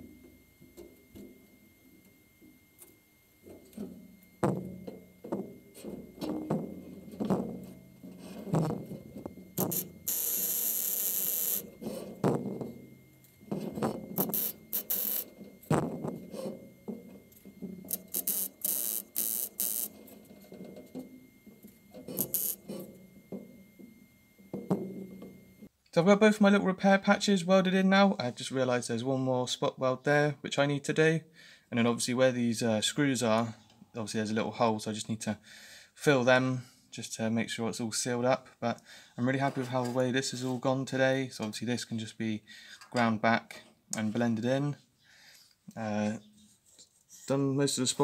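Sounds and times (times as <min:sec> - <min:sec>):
welder arc crackles: 0:08.1 - 0:12.4, 0:13.2 - 0:16.6, 0:17.3 - 0:20.2, 0:21.9 - 0:22.8.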